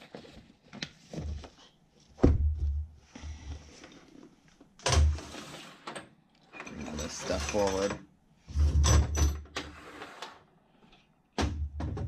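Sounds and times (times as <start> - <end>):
knocks and thumps on a hard case: 2.2 - 2.9, 11.4 - 12.0.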